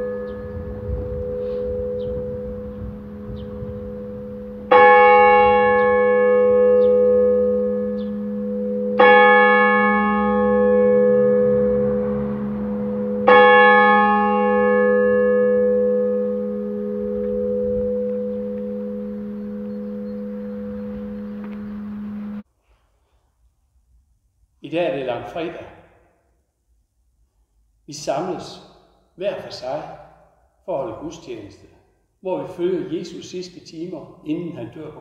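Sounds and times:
church bell tolling: 0:00.0 - 0:22.4
low bell hum: 0:00.0 - 0:22.4.

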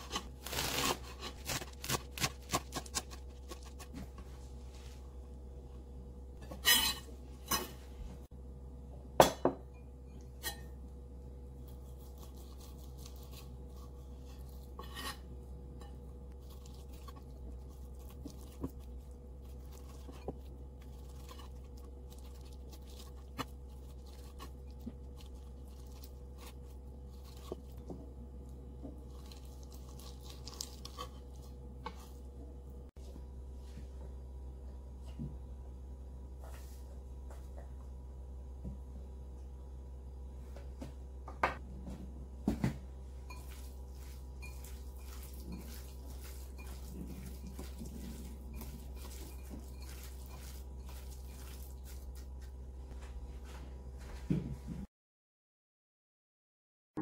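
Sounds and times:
steady low hum: 0:00.0 - 0:54.9.

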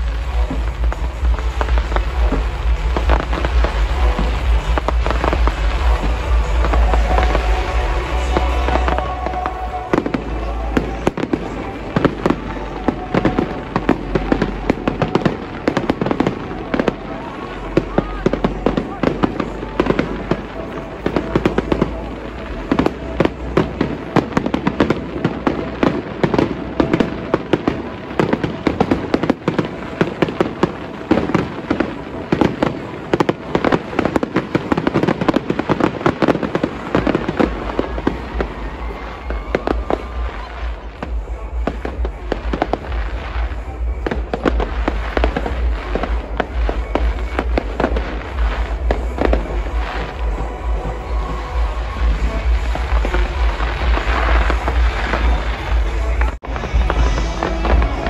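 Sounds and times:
fireworks crackling and banging: 0:00.0 - 0:58.0.

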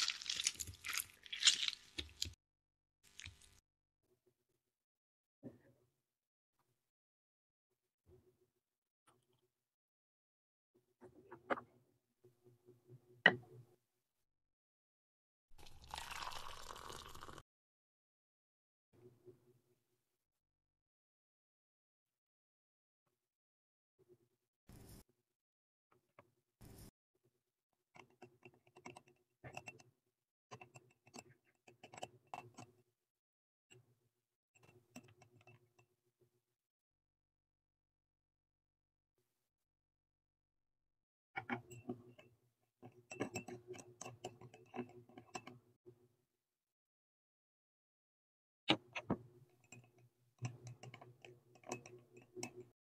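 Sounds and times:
milk pouring into glass bowl: 0:15.6 - 0:17.4.

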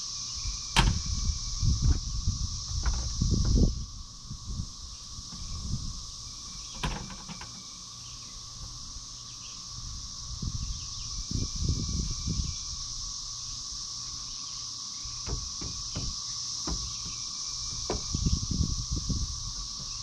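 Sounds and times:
high-pitched insect drone: 0:00.0 - 0:20.0
sharp knock on wood: 0:15.2 - 0:17.2, 0:17.8 - 0:18.2
dull low thumps: 0:15.3 - 0:20.0.

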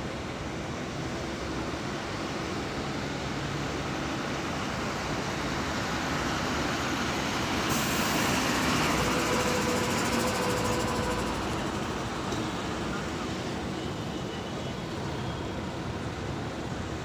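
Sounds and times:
bus passing by: 0:00.0 - 0:17.0
air brake hiss: 0:07.7 - 0:11.3.

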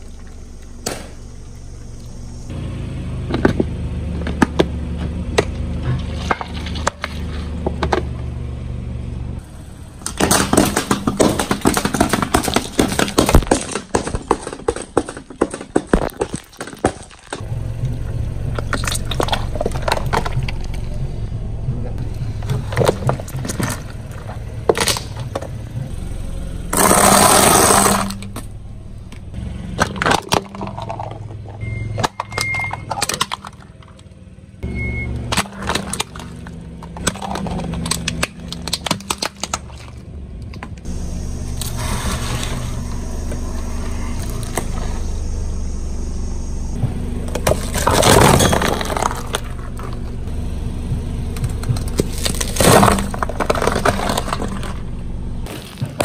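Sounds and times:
car engine rumble: 0:00.0 - 0:56.0
tyre crushing objects: 0:10.1 - 0:17.6, 0:22.0 - 0:25.9, 0:26.7 - 0:28.5, 0:35.3 - 0:40.8, 0:46.8 - 0:50.3, 0:50.9 - 0:56.0.

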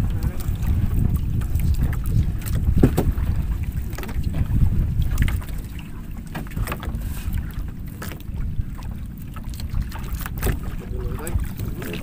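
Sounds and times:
wind buffeting microphone: 0:00.0 - 0:12.0
fishing net knocks and rustles: 0:02.7 - 0:03.2.

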